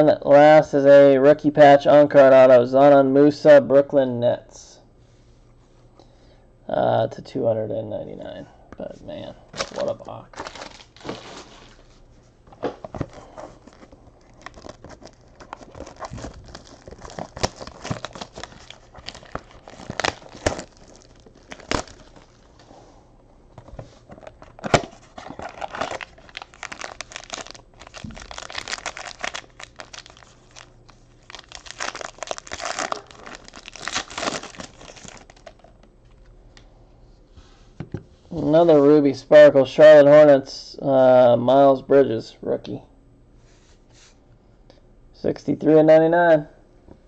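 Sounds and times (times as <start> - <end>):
packaging crinkling and tearing: 9.6 - 11.8, 12.9 - 22.6, 23.7 - 35.8.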